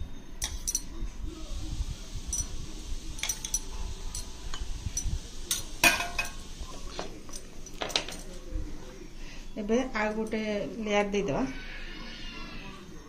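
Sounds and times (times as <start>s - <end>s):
metal spoon clinking on glass dish: 0.4s - 1.0s, 2.3s - 2.6s, 3.2s - 6.4s.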